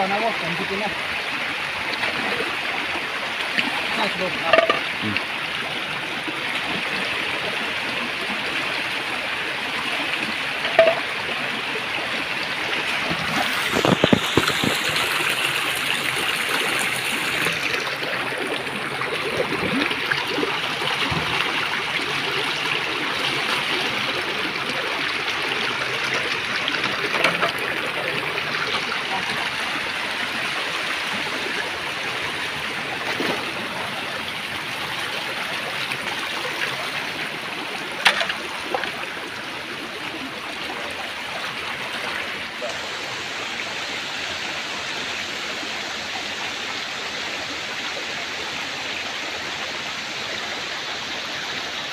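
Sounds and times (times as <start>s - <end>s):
stream running over rocks: 0.0s - 51.9s
splashes and knocks: 3.5s - 5.2s, 10.6s - 11.2s, 12.8s - 16.1s, 19.2s - 22.2s, 26.8s - 29.6s, 38.0s - 39.0s.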